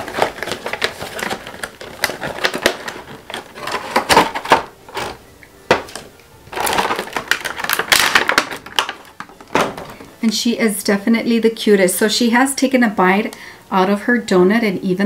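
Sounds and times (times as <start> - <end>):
cardboard packaging clicks and rustles: 0.0 - 10.2.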